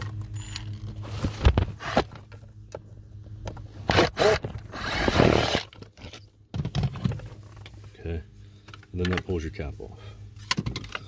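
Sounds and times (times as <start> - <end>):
clicks and knocks of plastic parts: 8.6 - 9.4, 10.4 - 11.0.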